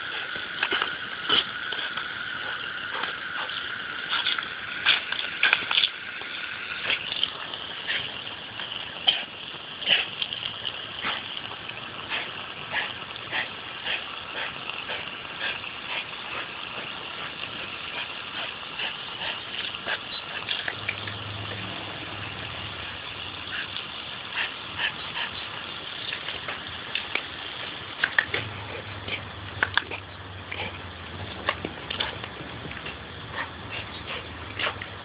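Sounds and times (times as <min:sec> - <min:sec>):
hose spray hissing: 0:00.0 - 0:35.0
dog jaws snapping: 0:04.0 - 0:05.9, 0:28.0 - 0:28.5.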